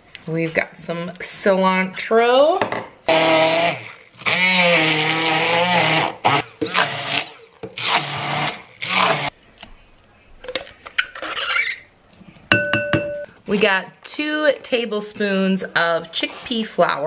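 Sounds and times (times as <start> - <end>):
stick blender running: 3.1 - 9.3.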